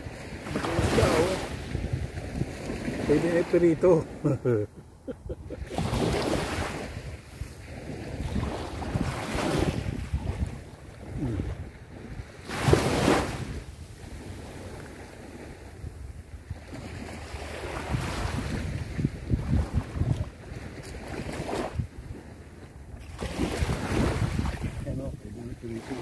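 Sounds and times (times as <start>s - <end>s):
small waves washing on sand: 0.0s - 26.0s
wind buffeting microphone: 0.0s - 26.0s.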